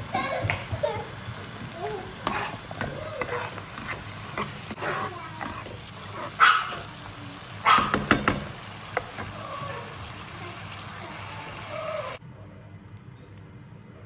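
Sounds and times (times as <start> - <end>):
spatula stirring: 0.0 - 10.1
vegetables sizzling in frying pan: 0.0 - 12.2
spatula knocking against pan: 7.7 - 9.3.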